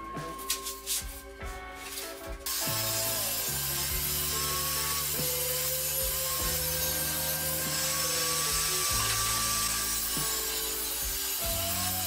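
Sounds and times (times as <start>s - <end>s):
background music: 0.0s - 12.0s
table saw cutting plywood: 2.5s - 12.0s.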